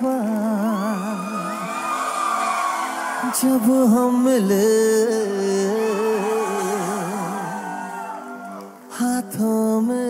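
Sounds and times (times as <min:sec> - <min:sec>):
man singing with vibrato: 0:00.0 - 0:01.8, 0:03.2 - 0:08.0, 0:08.9 - 0:10.0
soft backing music: 0:00.0 - 0:10.0.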